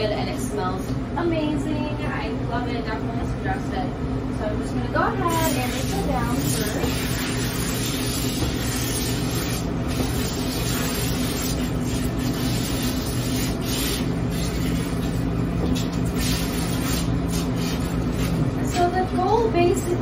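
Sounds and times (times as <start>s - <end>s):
steady low hum: 0.0s - 20.0s
water spraying and splashing: 5.3s - 18.5s.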